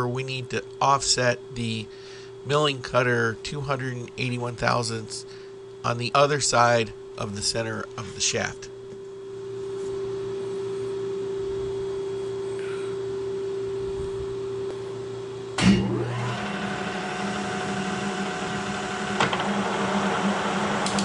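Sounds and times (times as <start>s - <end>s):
milling machine humming: 15.3s - 21.0s.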